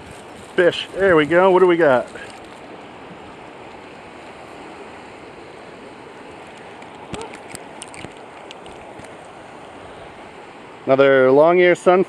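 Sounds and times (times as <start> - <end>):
creek water rushing: 0.0 - 12.0.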